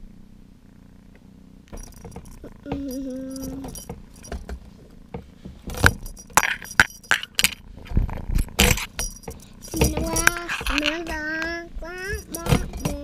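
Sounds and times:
metal spring toy rattling: 1.8 - 4.5, 5.8 - 7.7, 8.3 - 13.0.

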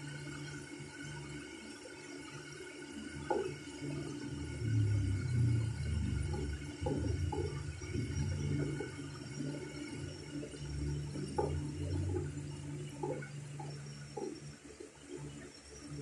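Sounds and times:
faint whistling tones: 3.8 - 16.0.

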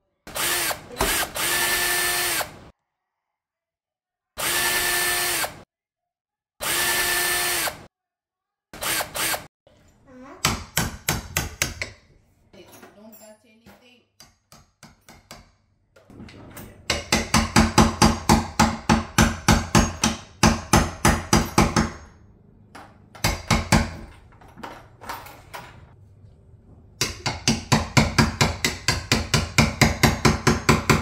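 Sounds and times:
hammer striking chisel on wood: 10.4 - 12.0, 14.2 - 15.6, 16.9 - 22.1, 22.8 - 24.1, 27.0 - 31.0.

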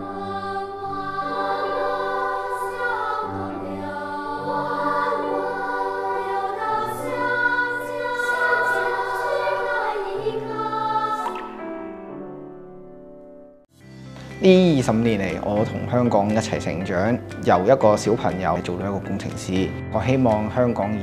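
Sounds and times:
choir singing held chords: 0.0 - 12.5.

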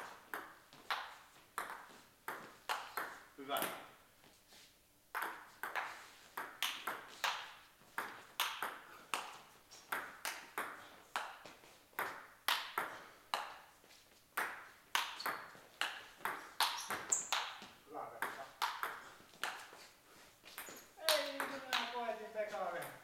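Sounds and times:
ball bouncing on table: 0.3 - 3.8, 5.1 - 13.6, 14.4 - 19.7, 20.5 - 22.0
table tennis ball clicking off bats: 5.2 - 9.3, 12.0 - 13.6, 14.4 - 17.6, 18.2 - 19.6, 20.6 - 22.0.

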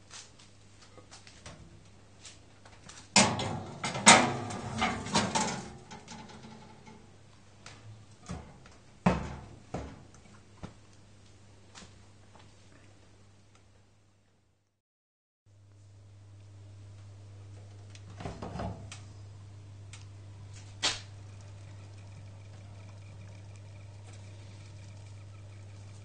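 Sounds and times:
low steady hum: 3.1 - 11.6, 15.5 - 26.0
metal clinking on oven rack: 3.2 - 7.0.

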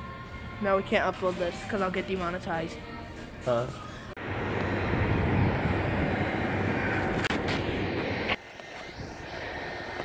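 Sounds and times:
jet aircraft roar: 4.2 - 10.0.

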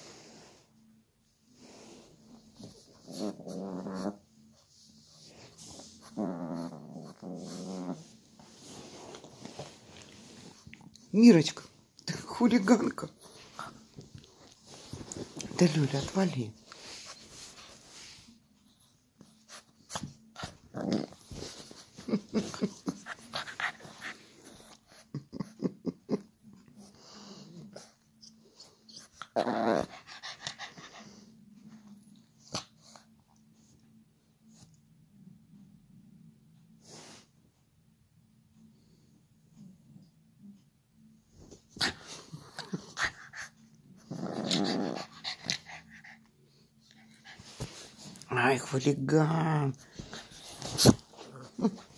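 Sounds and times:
puppy growling: 2.6 - 4.4, 5.3 - 11.1, 20.4 - 26.3, 29.0 - 31.2, 41.7 - 46.3, 50.0 - 51.9.

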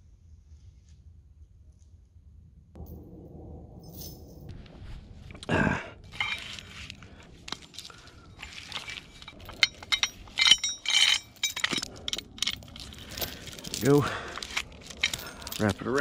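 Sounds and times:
chain rattling against snatch block: 6.1 - 6.7, 7.5 - 16.0.

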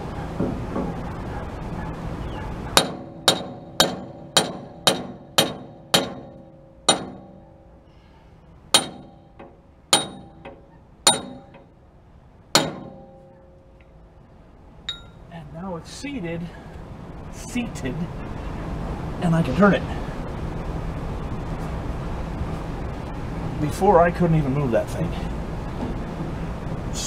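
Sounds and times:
hammer striking steel: 2.8 - 7.8, 8.8 - 11.7, 12.6 - 13.6, 14.9 - 15.2.

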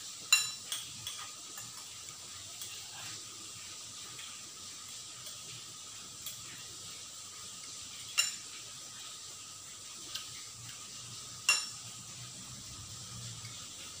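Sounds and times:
cutlery clinking on dishes: 0.3 - 2.0, 8.0 - 8.6, 11.4 - 11.8.

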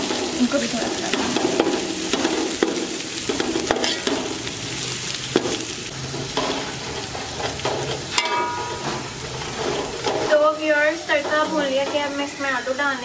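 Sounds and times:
masala sizzling in oil: 0.0 - 13.0
metal spoon scraping pot: 3.3 - 4.2, 6.3 - 10.4.

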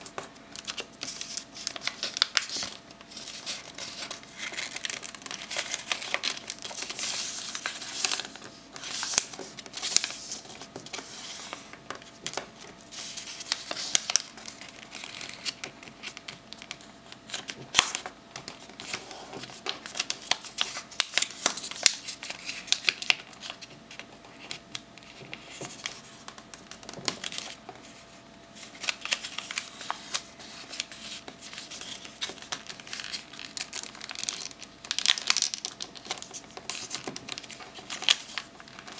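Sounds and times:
paper crackling: 0.0 - 28.0, 28.6 - 38.9
paper crinkling and rustling: 0.0 - 38.9.

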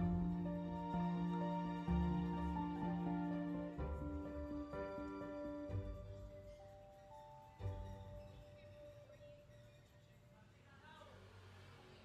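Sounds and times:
soft instrumental music: 0.0 - 10.4.

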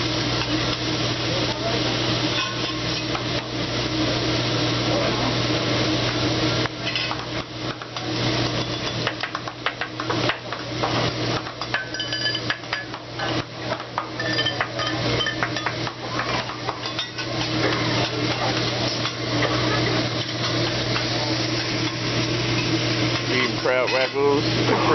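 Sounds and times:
spatula and knife on metal griddle: 1.7 - 3.5, 6.8 - 24.9.

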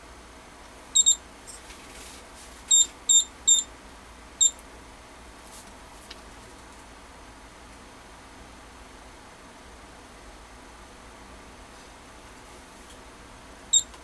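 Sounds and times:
short high electronic beeps: 1.0 - 1.2, 2.7 - 3.7.

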